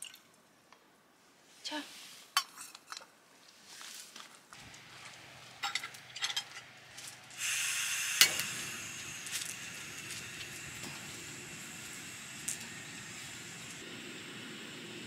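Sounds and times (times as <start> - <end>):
food sizzling in a hot pan: 7.4 - 13.7.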